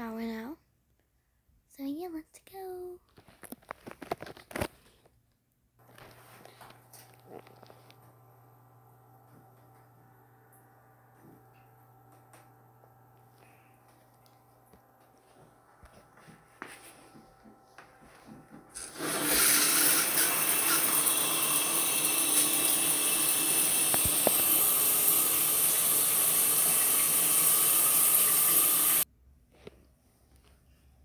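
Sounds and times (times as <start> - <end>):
shower water spraying: 18.8 - 29.0.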